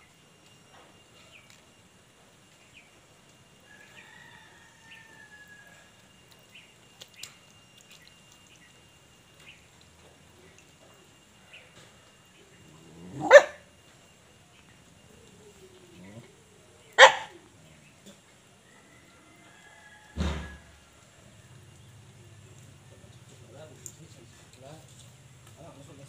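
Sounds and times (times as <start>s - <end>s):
small ticks: 6.0s - 11.0s
dog barking: 13.0s - 13.7s, 17.0s - 17.4s.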